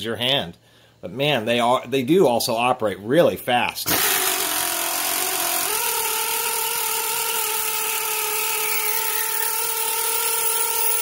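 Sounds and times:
air ratchet whining: 0:03.9 - 0:11.0.

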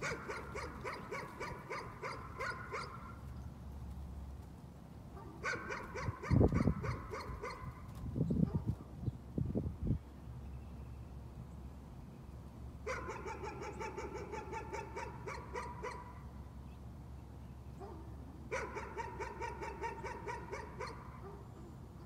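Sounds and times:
dog barking: 0:00.0 - 0:03.2, 0:05.2 - 0:07.8, 0:08.4 - 0:08.8, 0:12.9 - 0:16.2, 0:17.8 - 0:21.5.

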